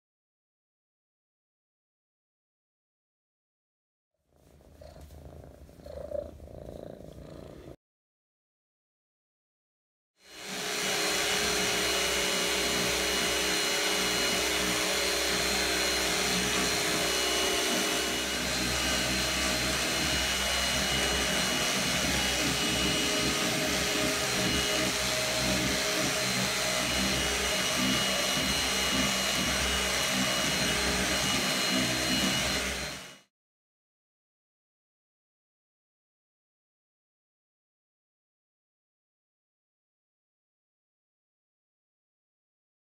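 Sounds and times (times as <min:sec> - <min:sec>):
vacuum cleaner running: 0:10.2 - 0:33.3.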